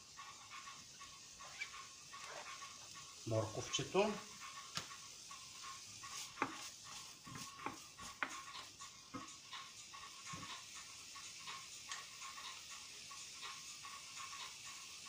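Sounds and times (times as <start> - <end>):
faint sizzle of frying: 0.0 - 15.0
wooden spoon scraping a pan: 1.4 - 2.7, 6.1 - 9.3.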